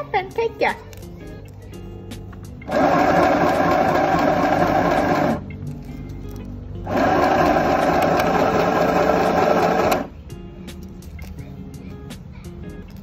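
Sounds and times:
sewing machine stitching: 0:02.6 - 0:05.4, 0:06.9 - 0:10.1.

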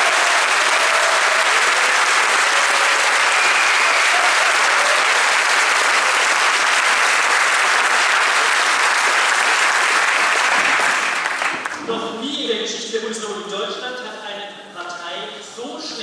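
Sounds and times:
large audience applauding: 0:00.0 - 0:11.8.

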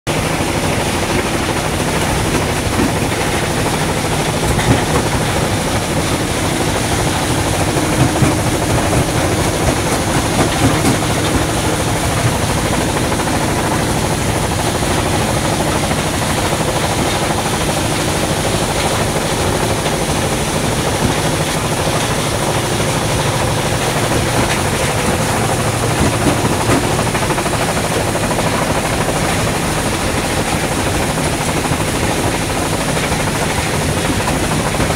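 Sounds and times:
stone crusher and conveyors: 0:00.1 - 0:34.9.

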